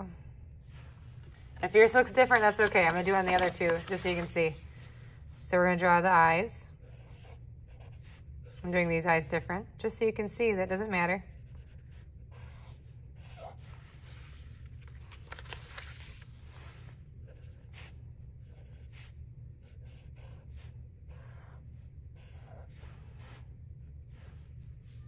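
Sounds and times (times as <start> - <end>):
steady low hum: 0.0 - 25.0
marker drawing on paper: 6.8 - 9.1, 10.5 - 14.7, 16.4 - 25.0.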